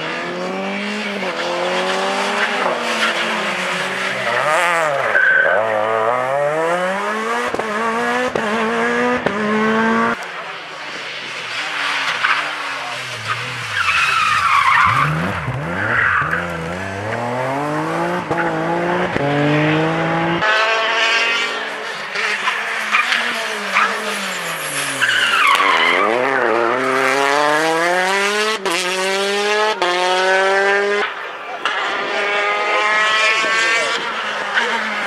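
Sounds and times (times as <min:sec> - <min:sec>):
rally car engines revving: 0:00.0 - 0:35.0
tyres squealing: 0:12.2 - 0:17.3.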